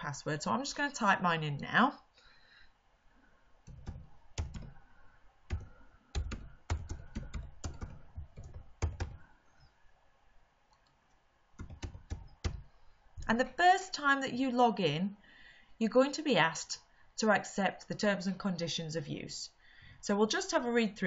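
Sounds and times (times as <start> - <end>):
typing on computer keyboard: 3.7 - 4.8, 5.5 - 9.2, 11.6 - 12.7.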